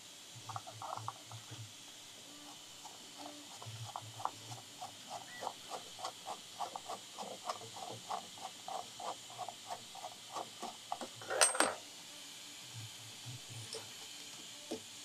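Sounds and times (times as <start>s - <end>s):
tool clattering: 10.4s - 11.8s.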